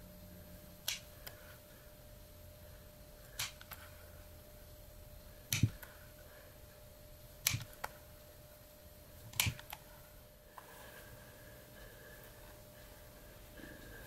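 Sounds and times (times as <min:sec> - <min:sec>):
hole punch pliers snapping leather: 0:07.5 - 0:07.8.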